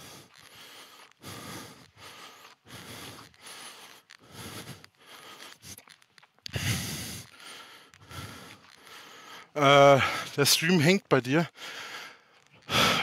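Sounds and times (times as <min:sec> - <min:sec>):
breath-like puffs: 0:00.0 - 0:10.3.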